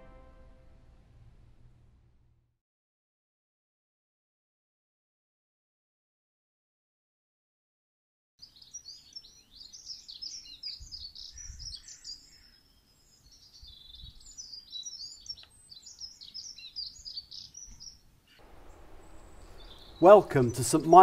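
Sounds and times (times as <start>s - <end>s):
songbirds chirping and warbling: 8.4s - 21.0s.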